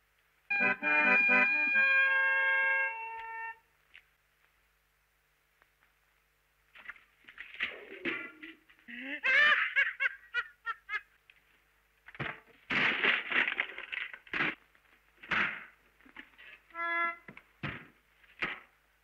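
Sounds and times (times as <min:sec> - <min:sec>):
wood cracking: 0:11.2 - 0:16.7.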